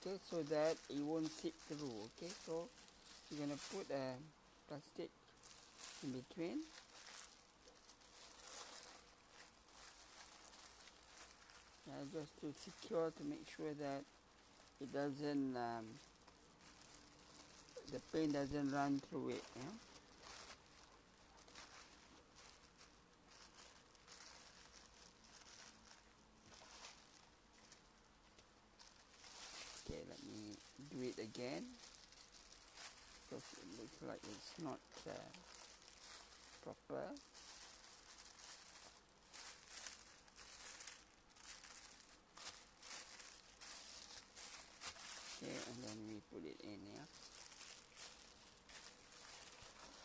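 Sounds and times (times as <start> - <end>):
plastic sheet and bag rustling: 0.0 - 50.0.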